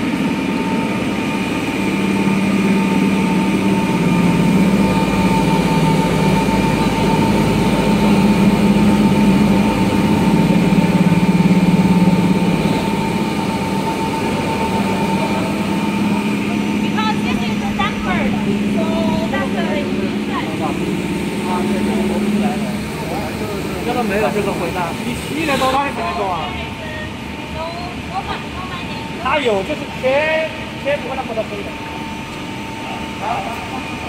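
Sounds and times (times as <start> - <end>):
machine motors humming: 0.0 - 34.0.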